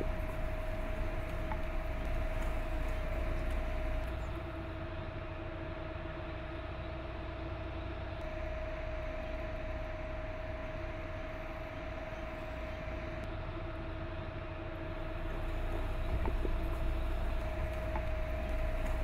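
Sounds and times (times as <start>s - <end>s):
vehicle engine idling: 0.0s - 5.4s, 14.7s - 19.0s.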